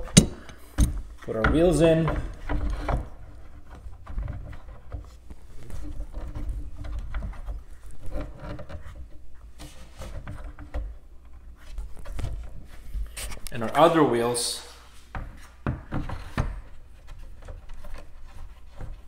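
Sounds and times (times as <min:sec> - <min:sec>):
knocks and clicks: 0:00.0 - 0:03.1
plastic scraping against metal: 0:00.0 - 0:13.8.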